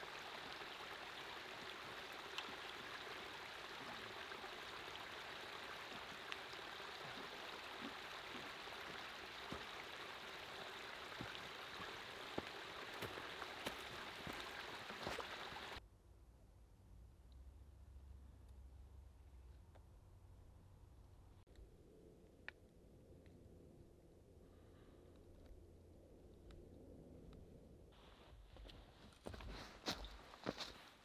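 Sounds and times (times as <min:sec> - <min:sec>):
brook trickling over rocks: 0:00.0 - 0:15.8
faint low rumble: 0:15.8 - 0:29.4.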